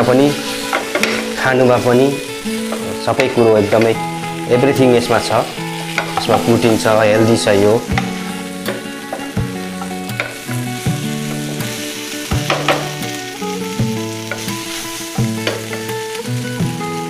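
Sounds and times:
hot oil sizzling: 0.0s - 17.0s
wooden spatula scraping a pan: 0.2s - 4.0s.

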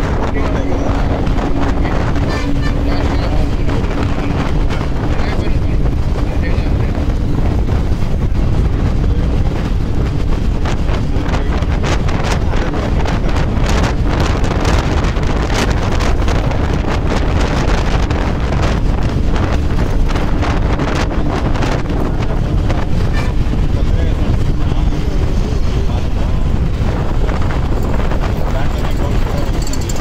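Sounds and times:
engine hum: 0.0s - 30.0s
low rumble of moving bus: 0.0s - 30.0s
wind buffeting microphone: 0.0s - 30.0s.

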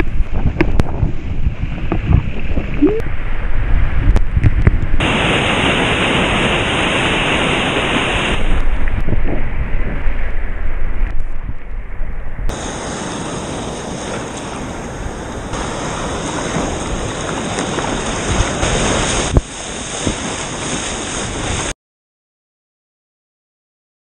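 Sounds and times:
wind buffeting microphone: 0.0s - 21.7s
sea water splashing: 5.0s - 9.1s, 12.5s - 21.7s.

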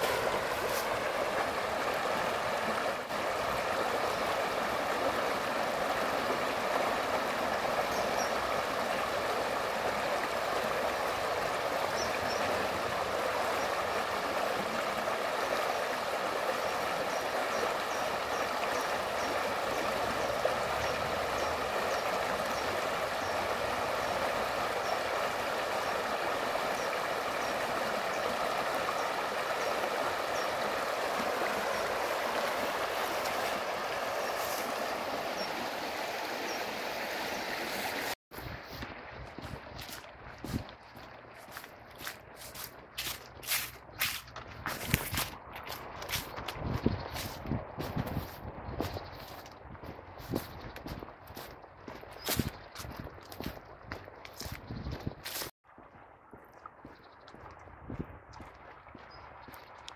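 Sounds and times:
stream babbling over stones: 0.0s - 47.4s.

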